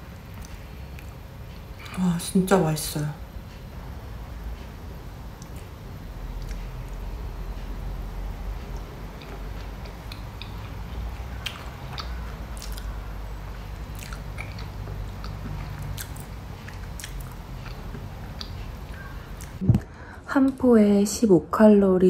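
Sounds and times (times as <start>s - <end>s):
steady low hum: 0.0s - 22.0s
person chewing with mouth clicks: 6.4s - 7.0s, 8.6s - 13.0s, 13.7s - 19.7s.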